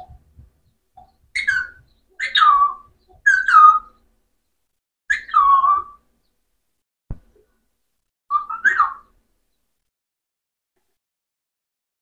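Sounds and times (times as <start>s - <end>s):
parakeet calling: 1.0s - 4.0s, 5.1s - 6.0s, 8.3s - 9.1s.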